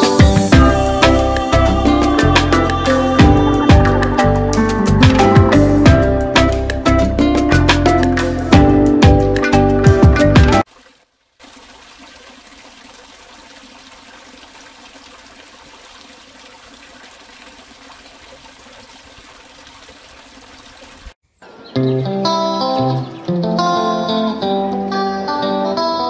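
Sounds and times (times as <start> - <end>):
background music: 0.0 - 10.6, 21.8 - 26.0
water trickling into a pool: 10.6 - 21.2.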